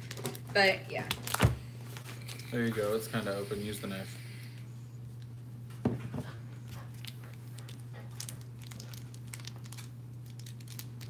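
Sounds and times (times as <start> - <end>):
plastic packaging crinkling and tearing: 0.0 - 3.0, 6.9 - 11.0
steady low hum: 0.0 - 11.0.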